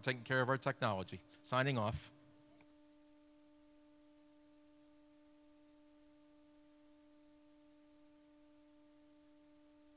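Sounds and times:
faint steady tone: 0:02.1 - 0:09.9.

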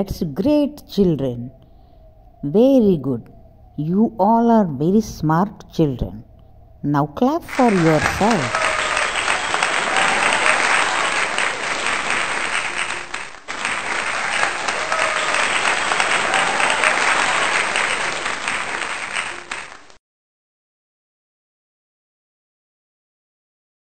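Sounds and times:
hands clapping: 0:07.5 - 0:20.0.

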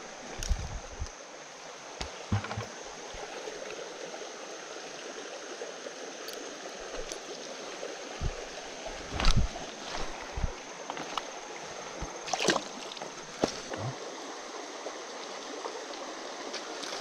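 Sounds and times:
creek water rushing over stones: 0:00.0 - 0:17.0
handling knocks: 0:02.3 - 0:02.7.

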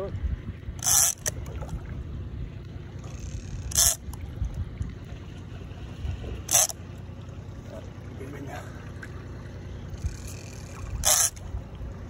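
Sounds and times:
wind rumbling on microphone: 0:00.0 - 0:06.5, 0:09.9 - 0:12.0.

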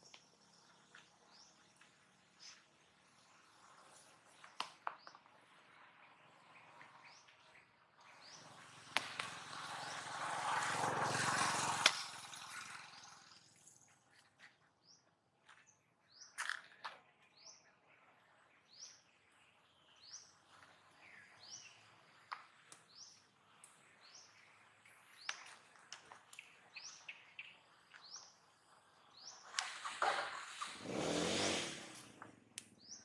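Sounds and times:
bird chirping: 0:26.3 - 0:29.6.

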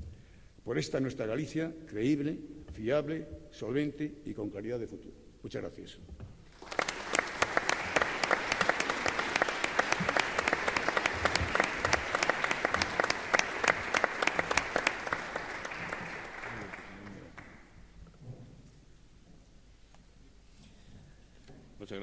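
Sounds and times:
audience applauding: 0:06.5 - 0:17.8.

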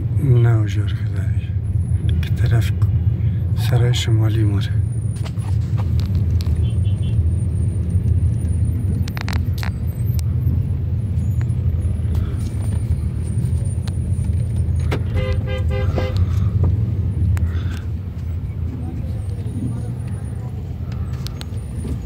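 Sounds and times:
car engine and road noise: 0:00.0 - 0:22.0
car horn beeps: 0:06.5 - 0:07.3, 0:14.9 - 0:16.4.

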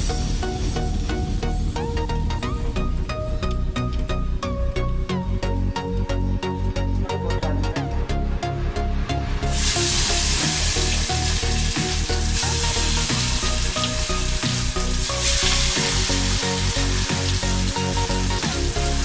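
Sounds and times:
background music with steady beat: 0:00.0 - 0:19.0
chicken deep-frying in hot oil: 0:09.5 - 0:19.0.

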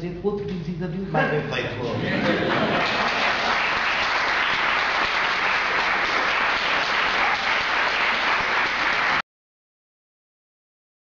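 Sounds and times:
audience applauding: 0:02.1 - 0:09.2.

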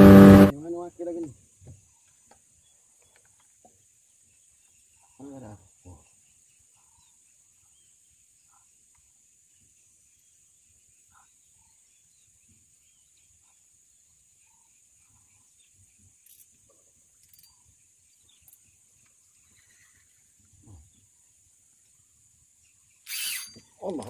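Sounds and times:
high-pitched insect drone: 0:23.0 - 0:23.7.

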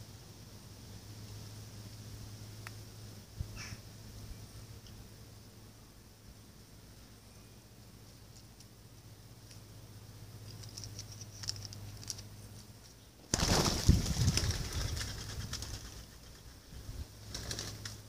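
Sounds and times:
beak pecking on paving stones: 0:07.9 - 0:18.0
birds wings flapping: 0:13.3 - 0:18.0.

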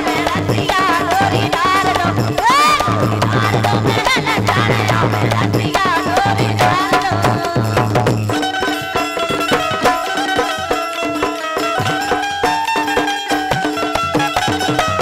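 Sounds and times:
woman singing folk song: 0:00.0 - 0:07.8
drums: 0:00.0 - 0:15.0
instrumental held notes: 0:00.0 - 0:15.0.

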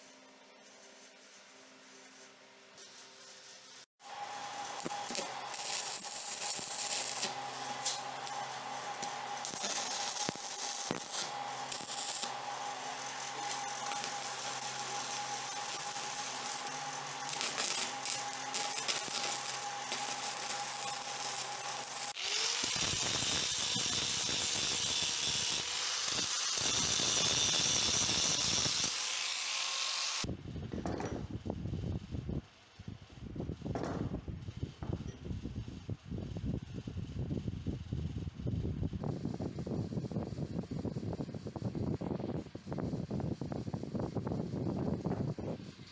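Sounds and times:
arc welder crackling hiss: 0:00.0 - 0:30.3.

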